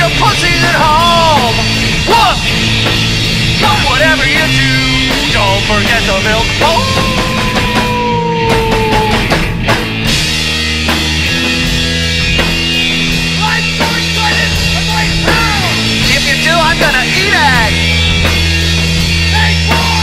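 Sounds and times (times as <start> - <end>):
heavy bass riff with drums: 0.0 - 20.0
punk rock band playing: 0.0 - 20.0
person singing whoa: 6.6 - 9.4.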